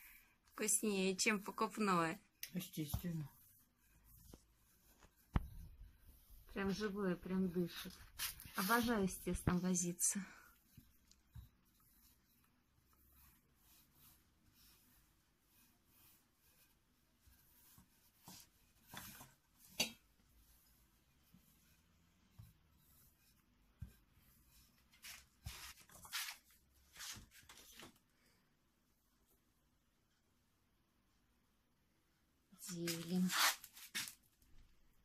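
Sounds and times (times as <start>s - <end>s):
rolling pin rolling over dough: 0.6s - 27.9s.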